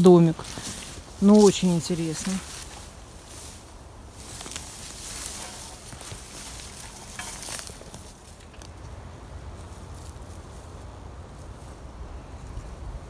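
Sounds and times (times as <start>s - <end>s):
footsteps rustling in dry leaves: 0.0s - 13.0s.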